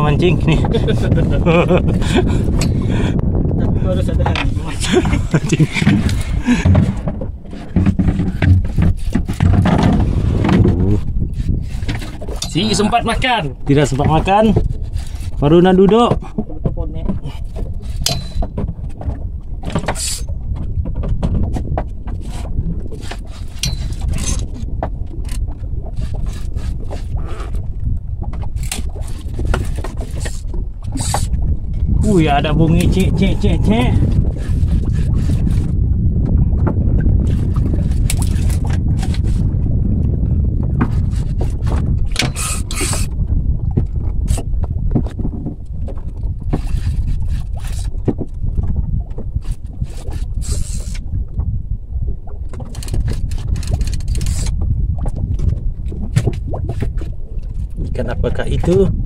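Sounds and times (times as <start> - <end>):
water slapping against hull: 0.0 - 59.0
wind rumbling on microphone: 0.0 - 59.0
fishing tackle clicks and scrapes: 4.1 - 20.4, 21.0 - 27.6, 28.4 - 35.8, 37.2 - 39.5, 40.8 - 43.2, 45.9 - 48.4, 49.4 - 51.0, 52.5 - 54.6.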